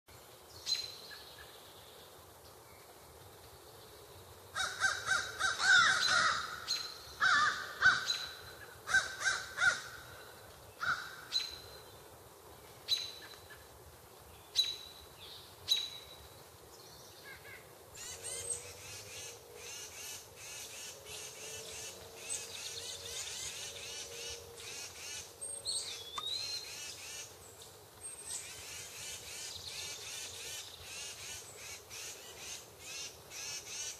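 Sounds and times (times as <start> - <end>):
birds chirping and twittering: 0.3 - 33.9
harsh bird calls: 4.6 - 10.2.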